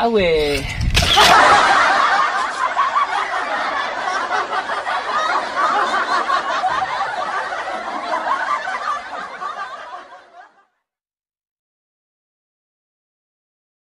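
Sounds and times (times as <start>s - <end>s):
group of people laughing: 1.0s - 10.8s.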